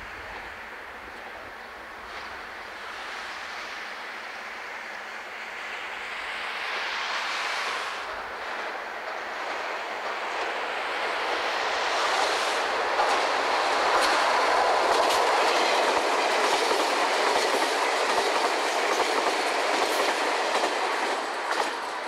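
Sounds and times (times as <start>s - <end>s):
train rolling on rails: 0.0s - 22.0s
wheels clacking over rail joints: 12.2s - 22.0s.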